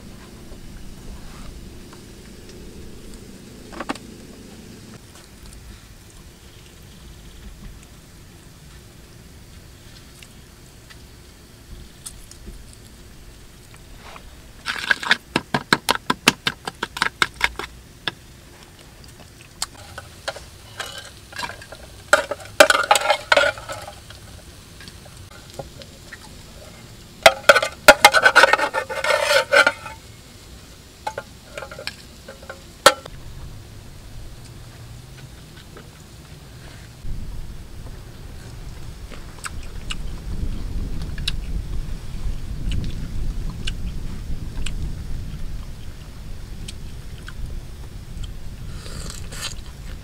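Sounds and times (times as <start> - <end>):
metal tins and utensils clinking: 19.7 - 24.4, 27.2 - 30.1, 31.0 - 33.1.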